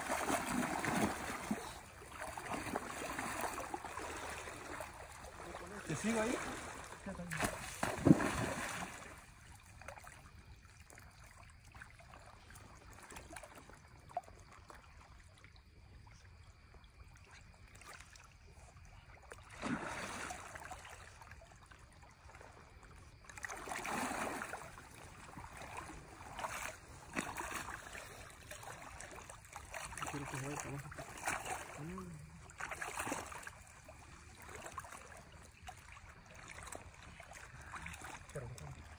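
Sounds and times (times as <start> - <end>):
fish splashing: 0.0 - 10.2
faint running water: 0.0 - 19.5, 20.2 - 38.9
water swishing from wading: 0.0 - 38.9.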